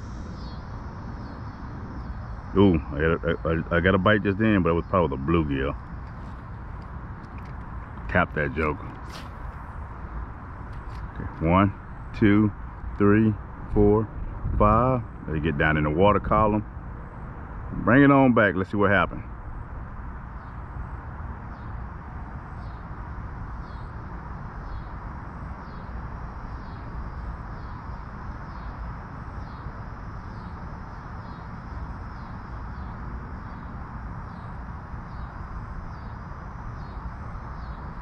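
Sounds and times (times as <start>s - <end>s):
bird chirping: 0.0s - 13.4s, 21.5s - 21.8s, 23.5s - 25.0s, 25.6s - 38.0s
low outdoor rumble: 0.0s - 38.0s.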